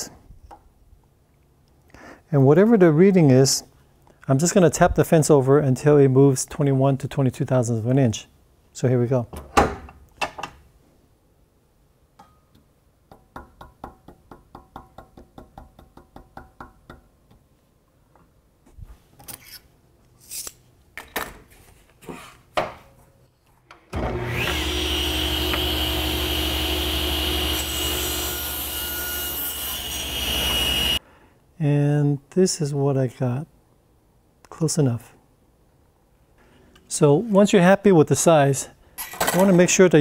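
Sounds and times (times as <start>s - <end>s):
table saw running: 24.0s - 31.0s.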